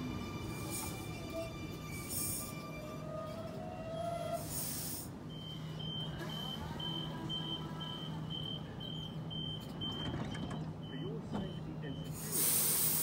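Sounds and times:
train equipment humming: 0:00.0 - 0:13.0
electronic door warning beeps: 0:05.2 - 0:12.3.

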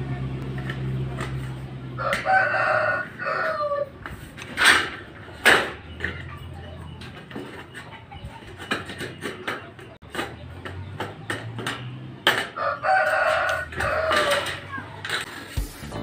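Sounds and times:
rooster crowing: 0:02.0 - 0:04.0, 0:12.6 - 0:14.6.

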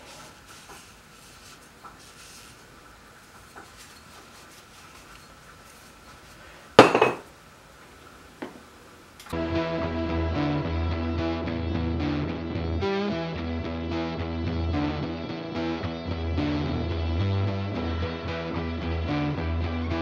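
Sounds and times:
faint handling noise: 0:00.0 - 0:09.3
music: 0:09.3 - 0:20.0.

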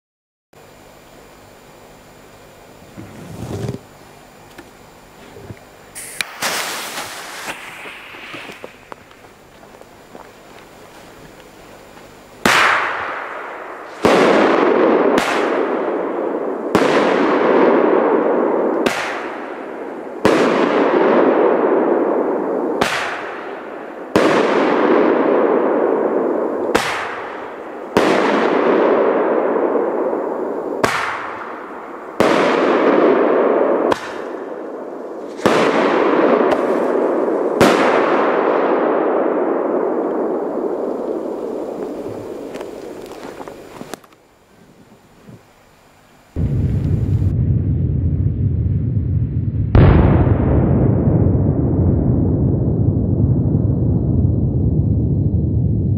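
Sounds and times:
firework bangs with rolling rumble: 0:06.0 - 0:10.1, 0:12.4 - 0:43.2, 0:46.4 - 0:55.9.

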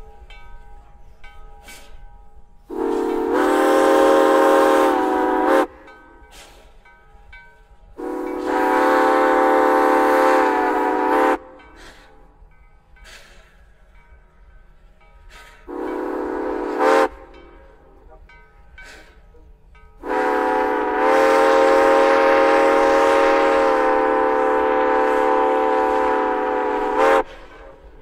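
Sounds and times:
steam whistle blasts: 0:02.7 - 0:06.6, 0:08.0 - 0:12.1, 0:15.3 - 0:17.8, 0:20.0 - 0:28.0.

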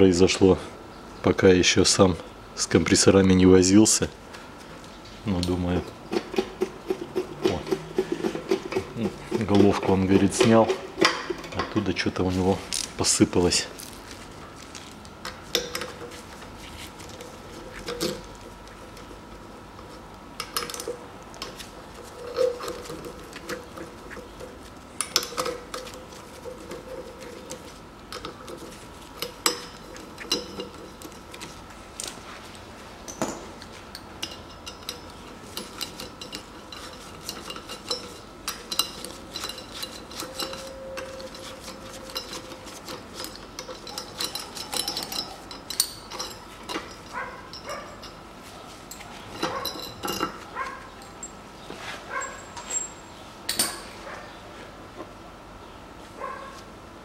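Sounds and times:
metal tool clicking on bolts: 0:20.4 - 0:31.5, 0:33.1 - 0:48.2.

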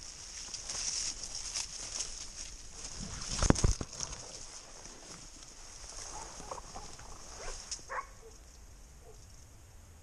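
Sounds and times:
dogs barking faintly: 0:05.9 - 0:09.3.

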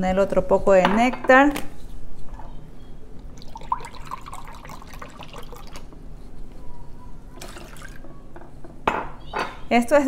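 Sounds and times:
liquid pouring and splashing: 0:03.3 - 0:05.9, 0:07.4 - 0:08.0.

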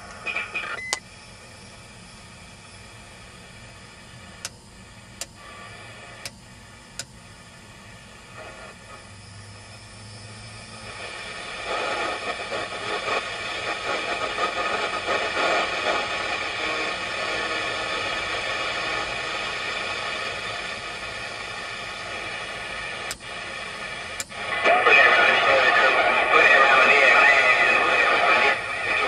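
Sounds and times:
radio static hiss: 0:00.0 - 0:29.0
radio control clicks: 0:04.4 - 0:04.6, 0:05.2 - 0:05.4, 0:06.1 - 0:07.2, 0:23.0 - 0:23.3, 0:24.1 - 0:24.4.

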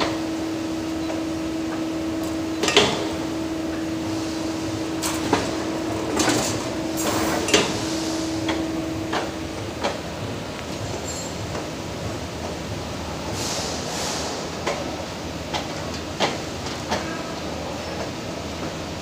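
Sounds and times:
machine motor hum: 0:00.0 - 0:13.4.

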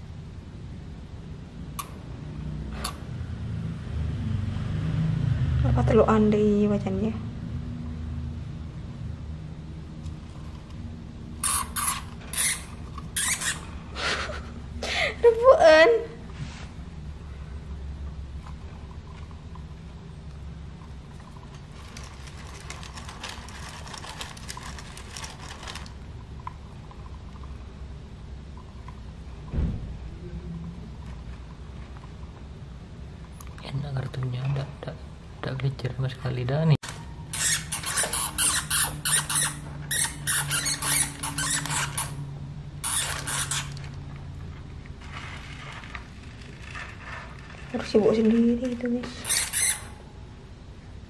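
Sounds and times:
low steady hum: 0:00.0 - 0:51.0
hamster scratching and scrabbling: 0:20.8 - 0:26.0, 0:45.0 - 0:49.9.

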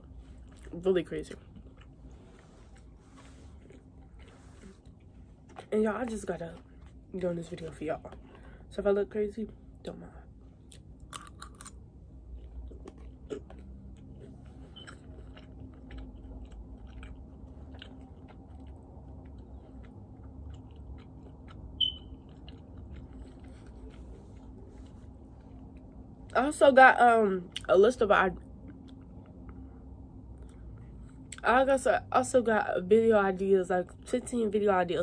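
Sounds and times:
person chewing food: 0:00.0 - 0:05.7, 0:06.6 - 0:07.1, 0:10.6 - 0:26.2, 0:28.4 - 0:31.4
low room hum: 0:00.0 - 0:35.0
high-pitched blip: 0:21.8 - 0:22.1.

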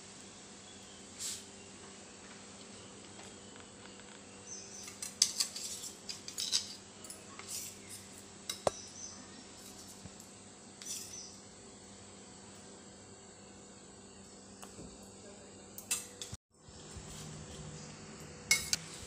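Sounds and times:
spoon scraping steel plate: 0:04.8 - 0:06.8, 0:10.8 - 0:11.3.

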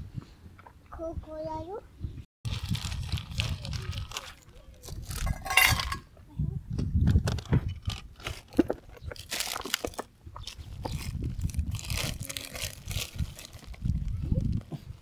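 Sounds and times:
handling noise on microphone: 0:03.4 - 0:06.1
objects picked up and set down: 0:05.2 - 0:06.1.

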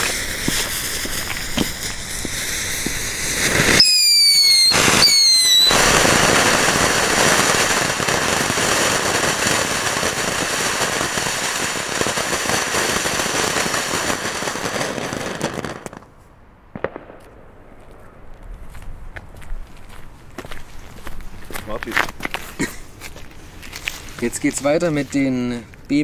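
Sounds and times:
firework fountain hissing: 0:00.0 - 0:16.0
falling whistles: 0:03.2 - 0:06.2.

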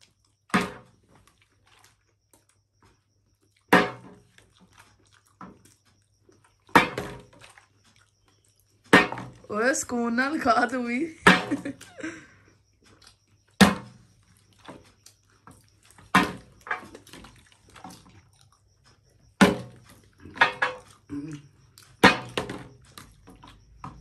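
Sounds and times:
plastic bottle landing on glass: 0:03.7 - 0:04.2, 0:13.6 - 0:14.0, 0:19.4 - 0:19.8.

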